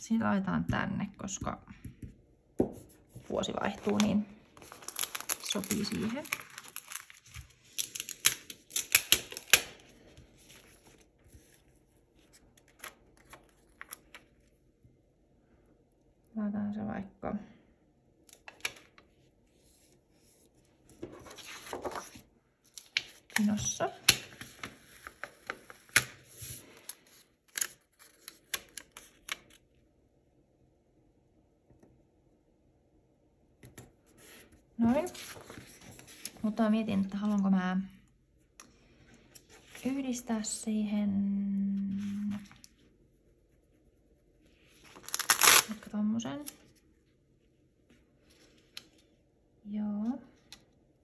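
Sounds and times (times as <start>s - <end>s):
paper rustling and crinkling: 2.8s - 14.6s, 19.6s - 29.6s, 34.1s - 37.4s, 44.6s - 46.9s.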